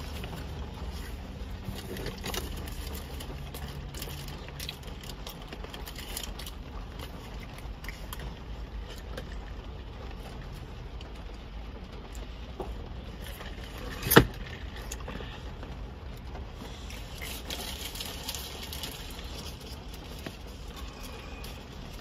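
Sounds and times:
low rumble inside car cabin: 0:00.0 - 0:22.0
plastic bag crinkling: 0:16.7 - 0:22.0.

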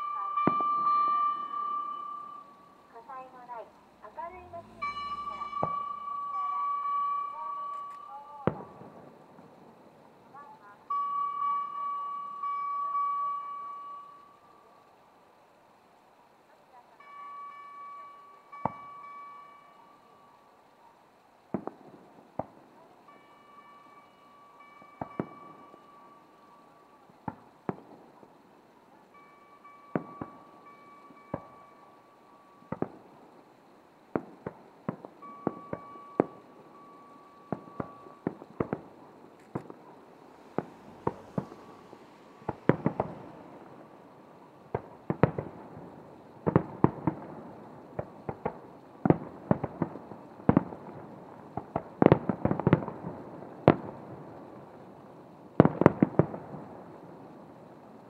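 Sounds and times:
fireworks bursting with bangs: 0:00.4 - 0:07.2, 0:08.4 - 0:10.4, 0:21.5 - 0:23.5, 0:24.6 - 0:58.0.

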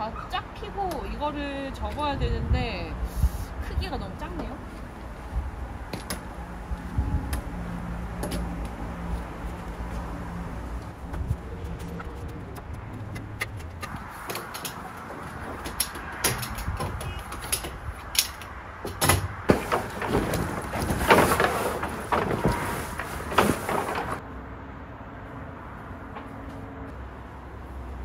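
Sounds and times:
metal tent poles clicking: 0:13.2 - 0:14.9, 0:15.5 - 0:20.2
canvas tent cover rustling: 0:19.7 - 0:24.2.

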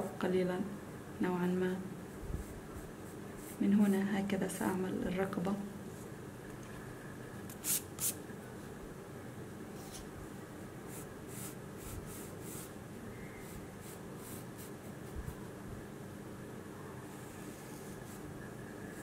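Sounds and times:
pencil scratching on paper: 0:10.9 - 0:12.7, 0:17.1 - 0:18.2.

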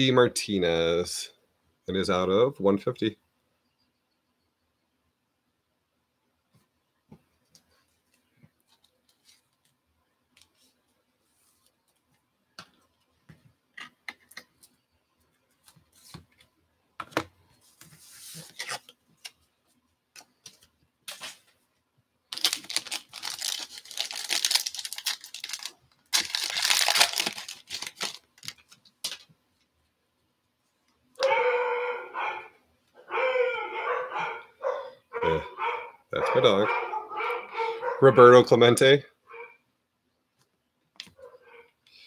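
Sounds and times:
foil wrapper tearing: 0:22.3 - 0:29.2
cards clicking and rustling: 0:22.3 - 0:29.3
dog barking: 0:31.2 - 0:38.3, 0:39.3 - 0:39.6, 0:41.2 - 0:41.8.

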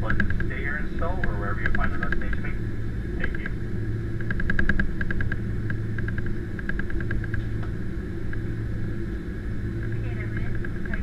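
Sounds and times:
airliner engine rumble: 0:00.0 - 0:11.0.

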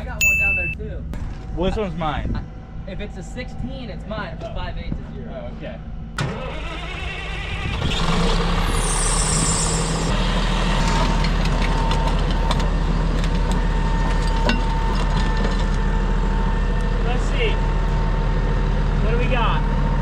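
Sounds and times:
bulldozer diesel engine: 0:06.1 - 0:20.0.

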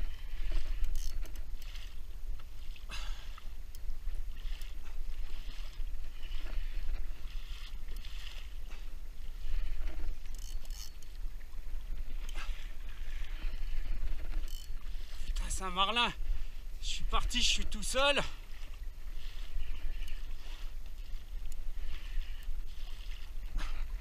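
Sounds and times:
wind rumble on microphone: 0:00.0 - 0:02.8, 0:03.7 - 0:15.6
water splashing against kayak hull: 0:00.0 - 0:24.0.

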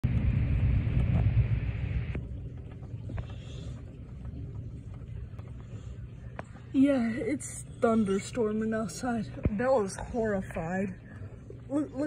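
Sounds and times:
thunder rumbling: 0:00.0 - 0:03.3.

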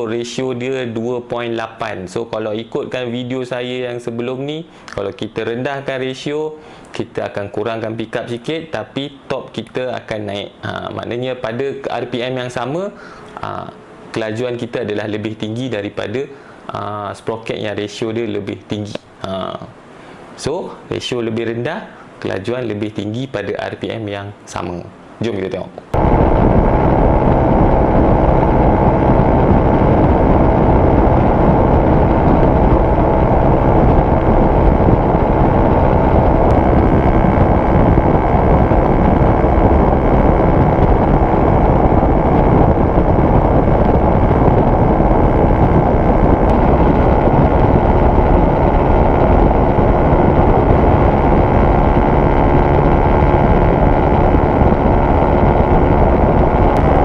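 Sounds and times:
wind on microphone: 0:25.8 - 0:57.0
motorcycle engine running hard: 0:26.0 - 0:57.0.

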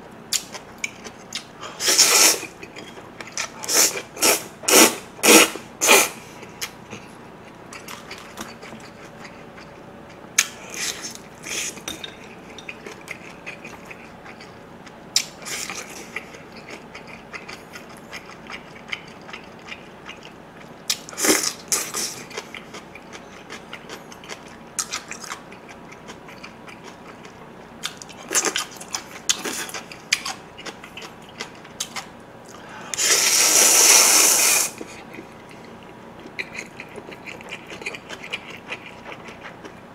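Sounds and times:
loud noodle slurping: 0:01.8 - 0:02.5, 0:03.6 - 0:06.2, 0:33.0 - 0:34.8
chewing: 0:06.4 - 0:33.1, 0:34.8 - 0:39.8.

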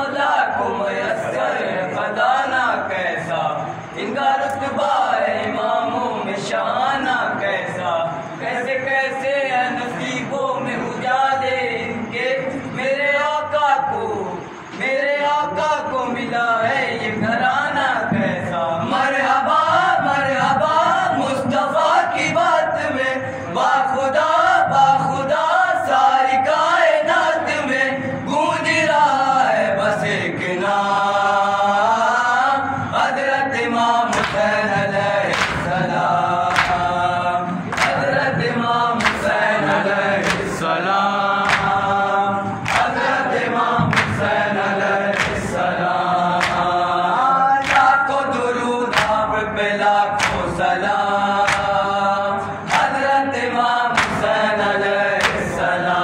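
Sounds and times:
men chanting in unison: 0:00.0 - 0:56.0.

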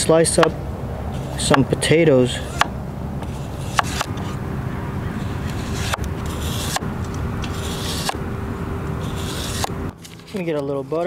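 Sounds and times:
knife slicing potatoes: 0:02.4 - 0:04.1, 0:07.5 - 0:08.2.

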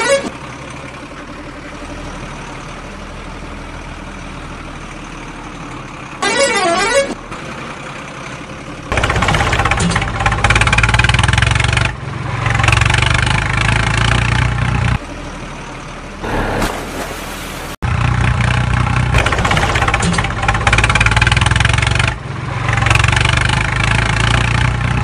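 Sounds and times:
musical truck horn: 0:00.0 - 0:00.3
loud truck engine running: 0:00.0 - 0:25.0
low engine hum: 0:07.2 - 0:25.0.

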